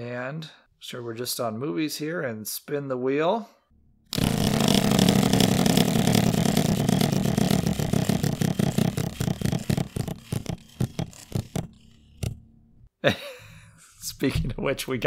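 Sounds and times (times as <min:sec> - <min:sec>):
spinning wheel ticking: 0:04.2 - 0:10.4.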